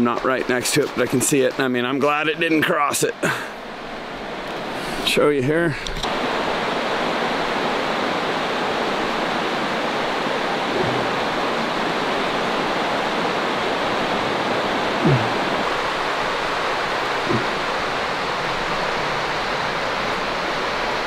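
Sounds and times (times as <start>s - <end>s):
creek rushing: 0.0s - 21.0s
low falling sounds: 15.0s - 15.6s.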